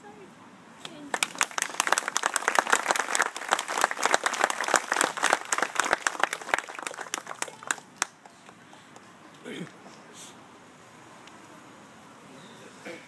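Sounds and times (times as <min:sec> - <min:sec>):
crowd applauding: 0:01.1 - 0:08.2.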